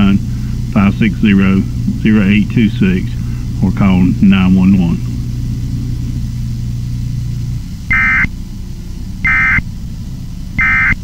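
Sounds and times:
low steady hum: 0:00.0 - 0:11.0
buzzy digital data bursts: 0:07.9 - 0:08.3, 0:09.2 - 0:09.6, 0:10.6 - 0:11.0.

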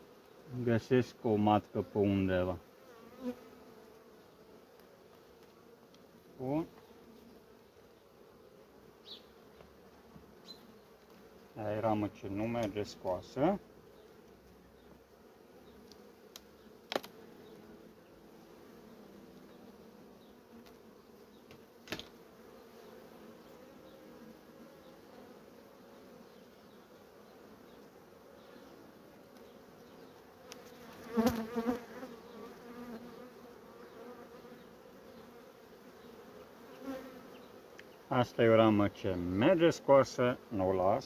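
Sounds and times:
honeybees humming: 0:00.0 - 0:41.0
knocks of wooden hive frames: 0:15.9 - 0:17.2, 0:21.4 - 0:22.2.

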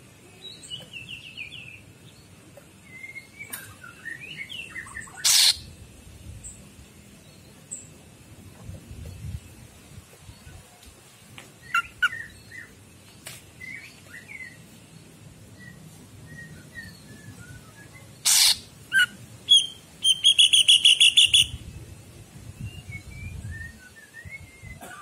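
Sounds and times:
fast rattling bird trill: 0:05.2 - 0:05.6, 0:18.2 - 0:21.6
bird chirps and whistles: 0:15.6 - 0:21.6.

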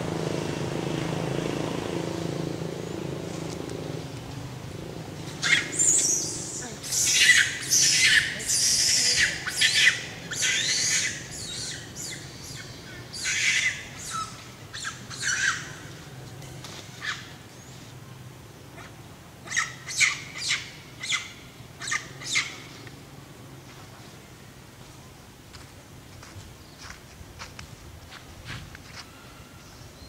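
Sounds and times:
shrill animal calls: 0:05.4 - 0:15.8, 0:18.8 - 0:22.6.

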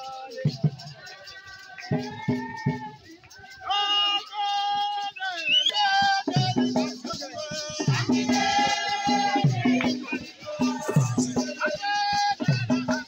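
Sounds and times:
hand rattles shaking: 0:00.0 - 0:13.0
women singing high notes: 0:07.9 - 0:11.6.

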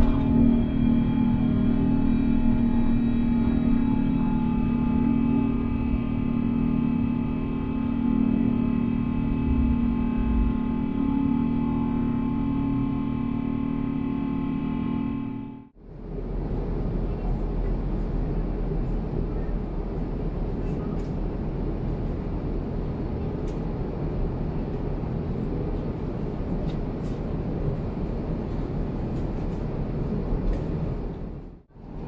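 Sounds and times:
airliner cabin rumble: 0:00.0 - 0:32.0.

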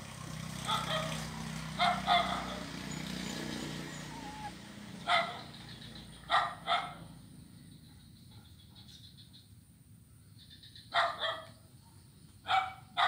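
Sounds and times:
dog barking: 0:00.6 - 0:02.9, 0:03.8 - 0:05.6, 0:06.3 - 0:07.1, 0:10.9 - 0:13.0.

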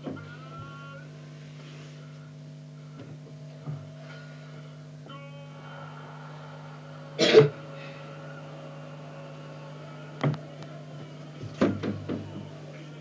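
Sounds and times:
steady low hum: 0:00.0 - 0:13.0
person coughing: 0:07.2 - 0:07.6.

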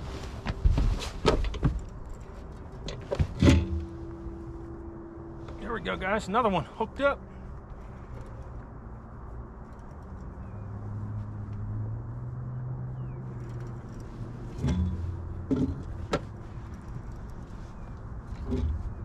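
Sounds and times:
low mechanical hum: 0:00.0 - 0:12.2
sharp knocks and clunks: 0:02.9 - 0:04.0, 0:14.5 - 0:16.4, 0:18.3 - 0:19.0.

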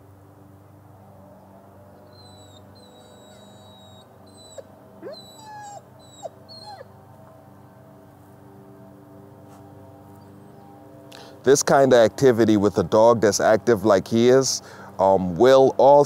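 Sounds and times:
dog whining and whimpering: 0:02.1 - 0:06.9.

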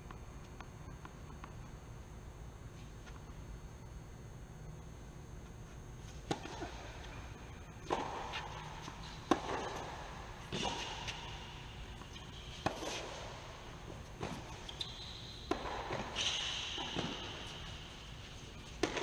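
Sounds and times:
tennis ball bouncing on court: 0:06.1 - 0:19.0
tennis ball struck by rackets: 0:06.2 - 0:06.9, 0:07.8 - 0:14.7, 0:15.4 - 0:17.8, 0:18.6 - 0:19.0.

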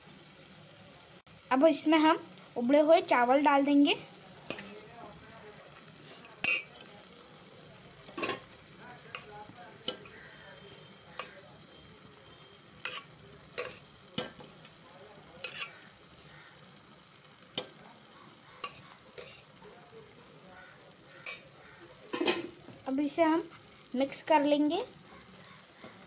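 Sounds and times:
faint sizzle of cooking: 0:00.0 - 0:26.0
metal spatula scraping a pot: 0:06.0 - 0:06.8, 0:11.1 - 0:11.4, 0:12.8 - 0:14.4, 0:15.4 - 0:16.3, 0:18.6 - 0:19.6, 0:21.1 - 0:22.6.

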